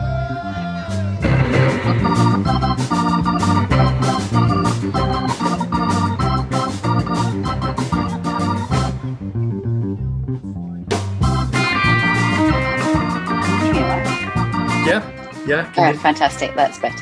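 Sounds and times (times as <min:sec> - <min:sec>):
organ-like keyboard chords: 0:00.1 - 0:17.0
fast steady beat: 0:01.2 - 0:09.1, 0:10.4 - 0:17.0.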